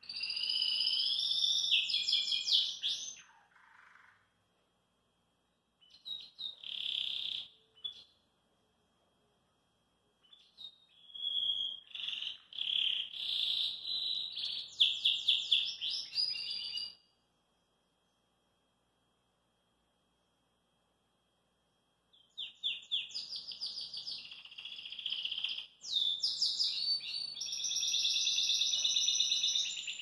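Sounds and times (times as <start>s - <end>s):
canary singing: 0.0s - 4.3s, 5.8s - 8.2s, 10.2s - 17.0s, 22.2s - 30.0s.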